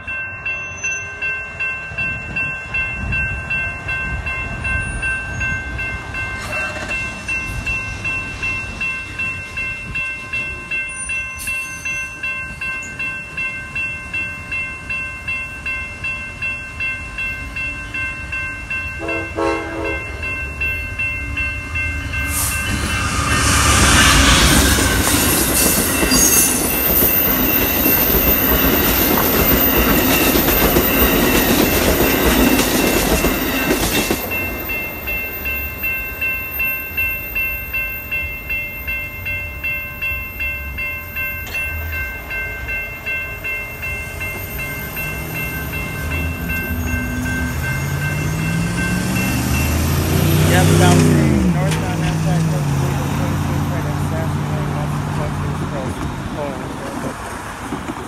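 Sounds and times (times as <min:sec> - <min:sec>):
railroad crossing bell ringing: 0:00.0 - 0:57.8
train wheels rumbling and clacking: 0:01.9 - 0:37.1, 0:40.8 - 0:58.0
locomotive horn blast: 0:19.0 - 0:20.2.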